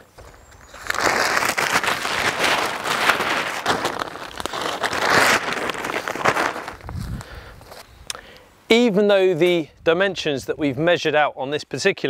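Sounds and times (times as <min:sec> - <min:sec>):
tarpaulin crinkling and rustling: 0:00.0 - 0:07.9.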